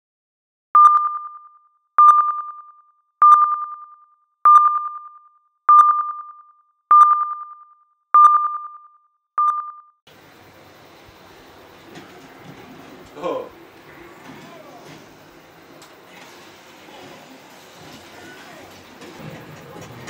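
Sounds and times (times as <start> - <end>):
electronic sonar pings: 0.8 - 10.0.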